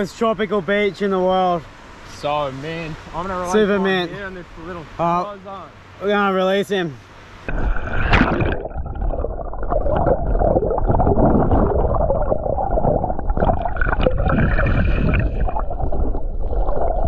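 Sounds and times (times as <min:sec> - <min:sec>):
muffled underwater churning: 0:07.5 - 0:17.0
water bubbling: 0:07.5 - 0:17.0.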